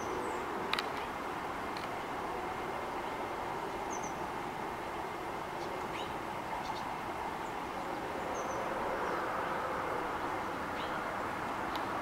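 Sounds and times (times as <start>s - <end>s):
distant traffic hum: 0.0s - 12.0s
small birds chirping: 2.9s - 4.3s, 5.4s - 12.0s.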